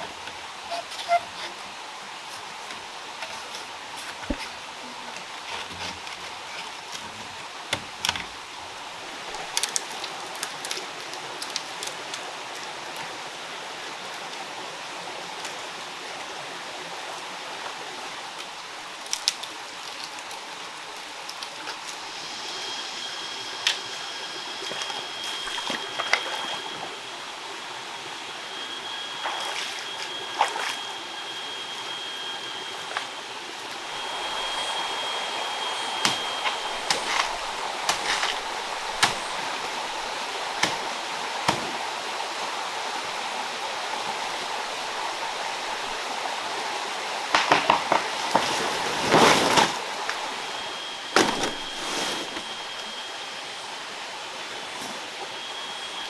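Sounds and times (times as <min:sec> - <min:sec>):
stream water rushing: 0:00.0 - 0:56.0
high thin tone: 0:27.8 - 0:38.6.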